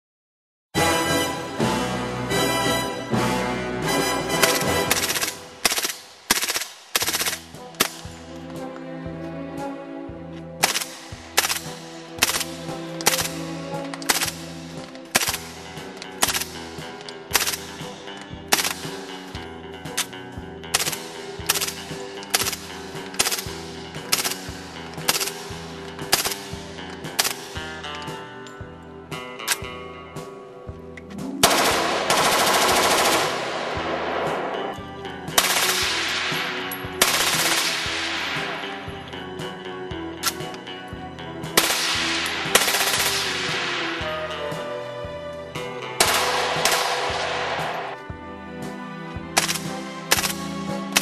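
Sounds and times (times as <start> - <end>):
background music: 0.8 - 51.0
suppressed gunfire bursts: 4.4 - 8.2, 10.6 - 28.2, 31.2 - 39.0, 41.4 - 44.7, 46.0 - 48.0, 49.4 - 51.0.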